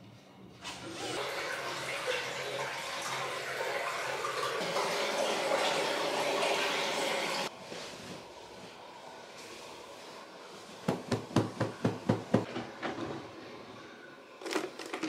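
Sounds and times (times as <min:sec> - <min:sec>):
tap water filling bathtub: 0:00.6 - 0:07.5.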